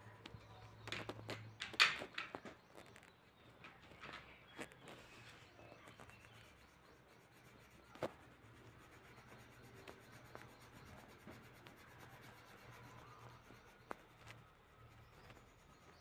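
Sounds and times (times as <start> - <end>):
pencil shading on paper: 6.1 - 16.0.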